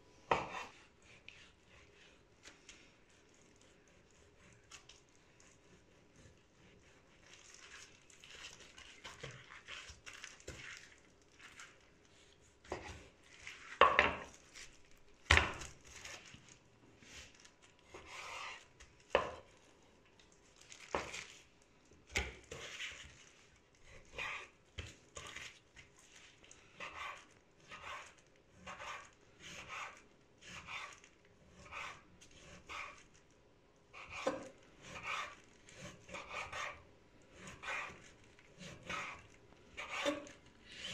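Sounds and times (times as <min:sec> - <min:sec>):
knife slicing meat on wooden board: 0:34.0 - 0:36.8.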